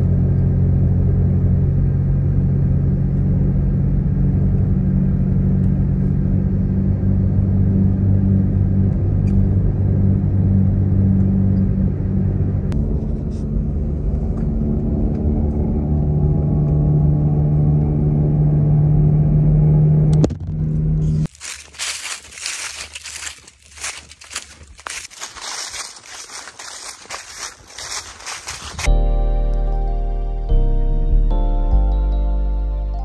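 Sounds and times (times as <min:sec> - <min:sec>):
car interior engine rumble: 0:00.0 - 0:32.9
footsteps crunching dry leaves: 0:21.0 - 0:28.9.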